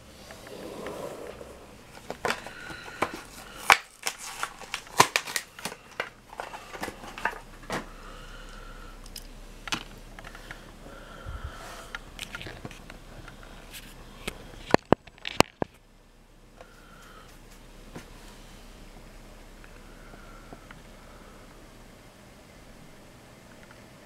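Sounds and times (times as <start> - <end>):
plastic packaging clicks and crinkles: 1.9 - 7.9, 11.9 - 15.8.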